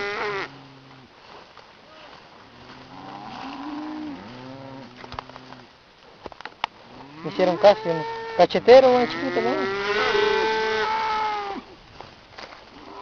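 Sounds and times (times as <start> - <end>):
cattle mooing: 0.0 - 1.1, 2.6 - 5.7, 6.8 - 11.7.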